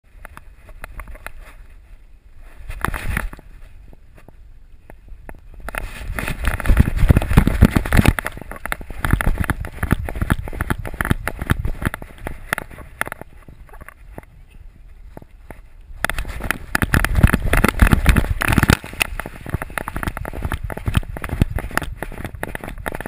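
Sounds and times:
fur brushing camera housing: 15.5 - 23.0.

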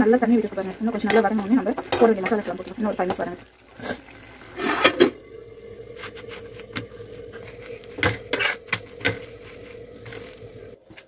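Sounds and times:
faint steady hum: 4.4 - 11.0.

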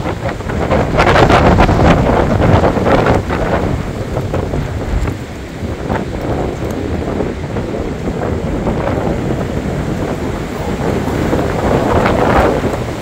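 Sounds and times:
gusting storm wind on microphone: 0.0 - 13.0.

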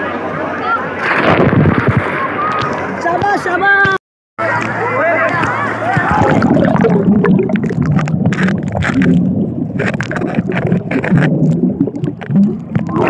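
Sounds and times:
muffled water sloshing underwater: 5.5 - 13.0.

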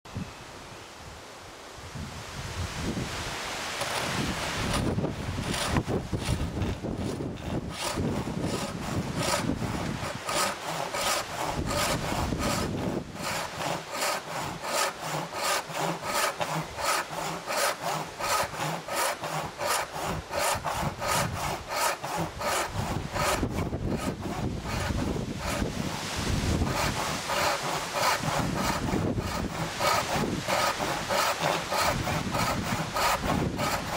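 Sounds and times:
wind rumbling on microphone: 1.8 - 13.8, 20.0 - 33.9
backsaw cutting wood: 3.7 - 33.9.

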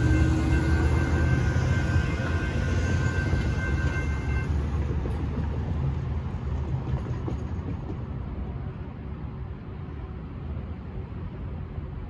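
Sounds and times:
crossing warning bell ringing: 0.0 - 4.8
freight train rumbling: 0.0 - 12.0
traffic rumble: 0.0 - 12.0.

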